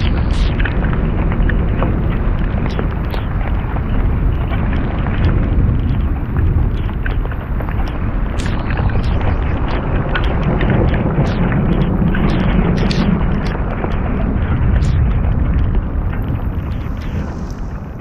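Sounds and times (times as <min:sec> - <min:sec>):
rain: 0:00.0 - 0:18.0
sharp ticks: 0:00.0 - 0:18.0
storm wind buffeting microphone: 0:00.0 - 0:18.0.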